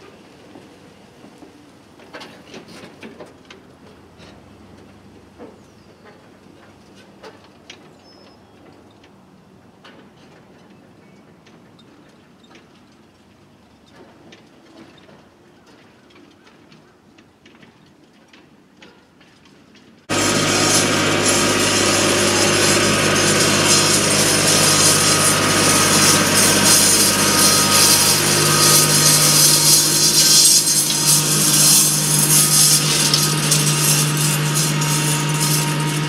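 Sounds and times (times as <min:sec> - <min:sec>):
harrow rasping on ground: 0:20.1 - 0:36.0
tractor diesel engine running: 0:20.1 - 0:36.0.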